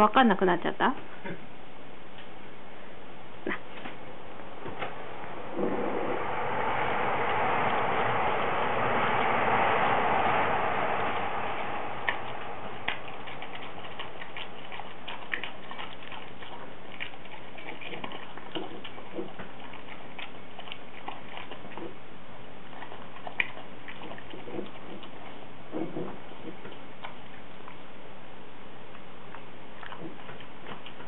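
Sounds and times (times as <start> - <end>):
dog chewing: 9.1 - 28.0, 28.8 - 31.0.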